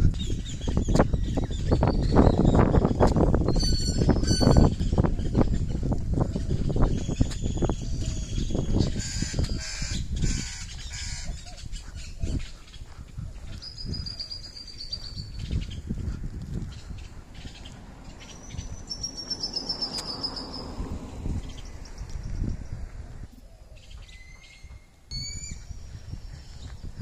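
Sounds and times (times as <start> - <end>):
thumping rumble on microphone: 0.0 - 9.6
harsh rapid bird calls: 0.2 - 20.8.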